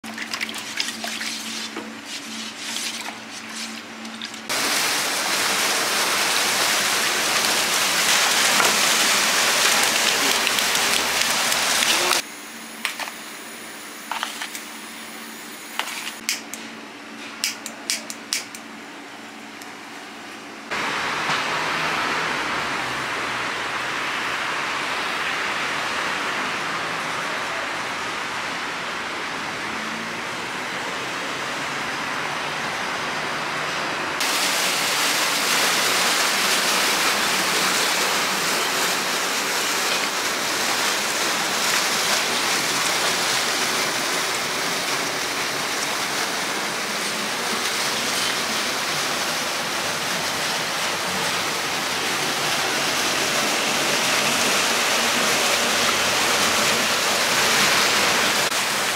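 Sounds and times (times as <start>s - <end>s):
water pouring into pond: 0.0s - 1.7s, 4.2s - 12.2s, 34.2s - 58.9s.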